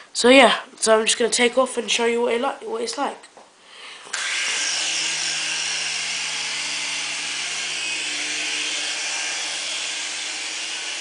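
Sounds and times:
toy helicopter motor whine: 4.1 - 11.0.

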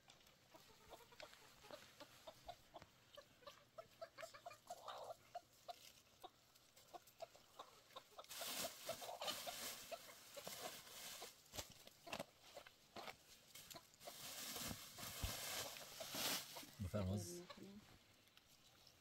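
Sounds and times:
faint chickens clucking: 0.0 - 19.0
rustling noise: 8.2 - 17.0.

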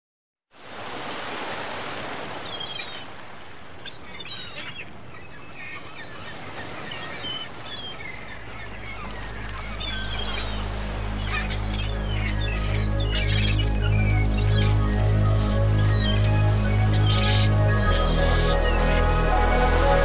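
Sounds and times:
birds chirping and calling: 3.8 - 20.0
low sustained music notes: 8.0 - 20.0.

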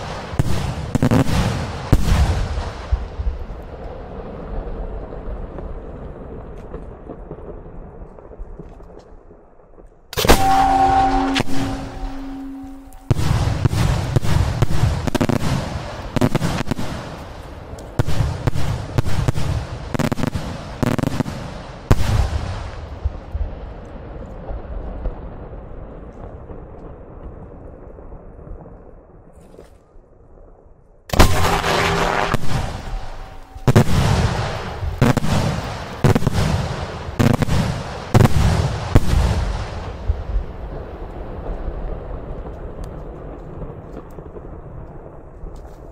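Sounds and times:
fireworks bangs and cracks: 0.0 - 28.8, 31.1 - 45.9.

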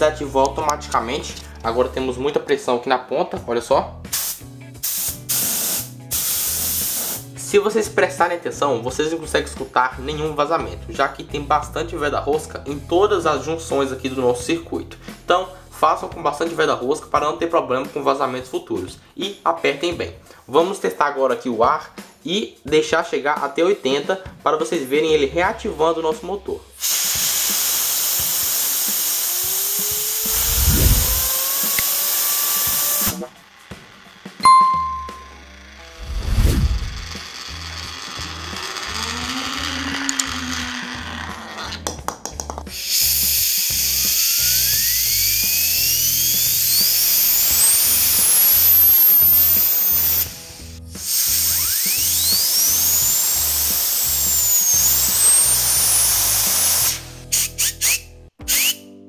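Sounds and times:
air blow gun hissing: 4.1 - 7.3, 26.8 - 33.3, 42.7 - 58.0
pulley wheel whine: 29.4 - 41.8, 43.1 - 56.9
blower fan whining: 30.0 - 31.6, 36.0 - 41.3.

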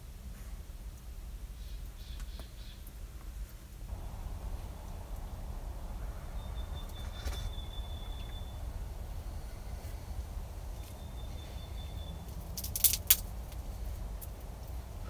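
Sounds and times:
low rumble: 3.9 - 15.0
thin high whistle: 6.4 - 8.7
sharp clicks: 12.5 - 13.6.

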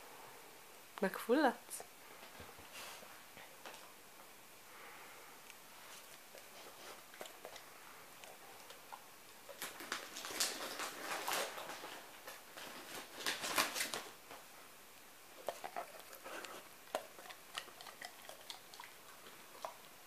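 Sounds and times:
dog chewing with wet smacking: 5.8 - 14.1, 15.4 - 20.0.

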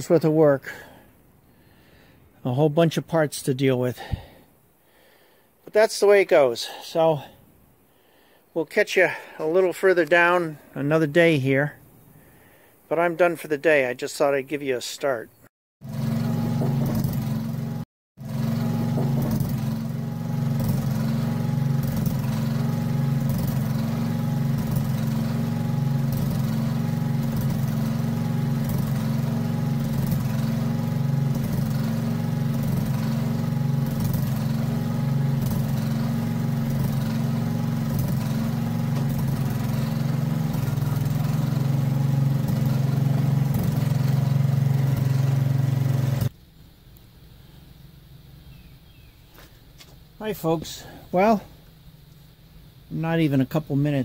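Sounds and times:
backhoe engine running: 15.8 - 46.3.

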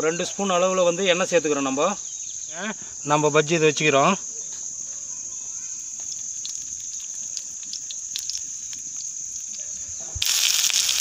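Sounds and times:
crickets trilling: 0.0 - 11.0
okra crackling in hot oil: 5.4 - 11.0
loud frying sizzle: 5.9 - 11.0.

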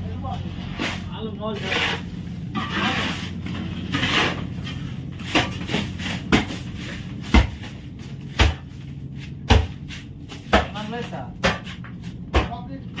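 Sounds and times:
short scraping rush: 0.7 - 4.9.

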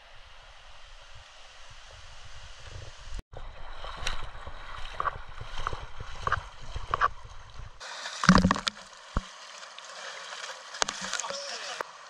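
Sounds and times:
water splashing: 3.4 - 12.0
stream rushing: 7.8 - 12.0.

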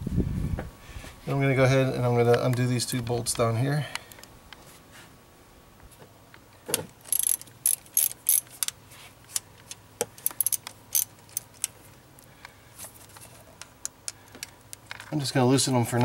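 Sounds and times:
hand ratchet clicking: 7.1 - 8.7, 10.2 - 11.7.

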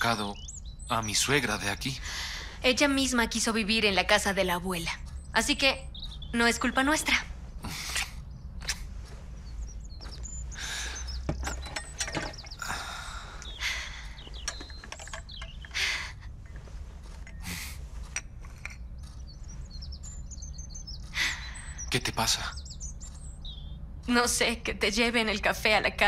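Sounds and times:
steady low hum: 0.0 - 26.0
bedclothes rustling: 6.4 - 18.8.

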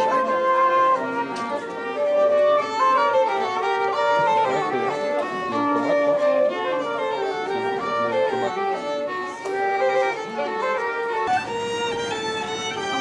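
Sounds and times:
transverse flute: 0.0 - 13.0
violin: 0.0 - 13.0.

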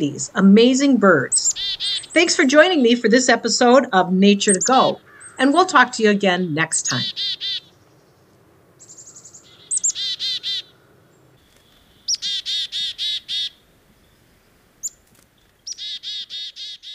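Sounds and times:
chickadee call: 12.1 - 13.6.

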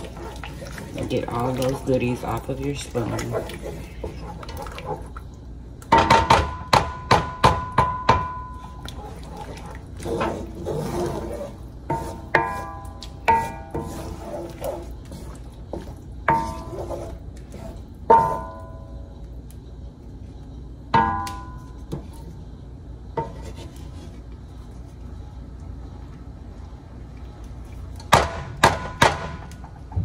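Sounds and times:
spoon stirring thick sauce: 0.0 - 5.5, 8.6 - 18.4
wooden spoon knocking metal pan: 5.9 - 8.5.

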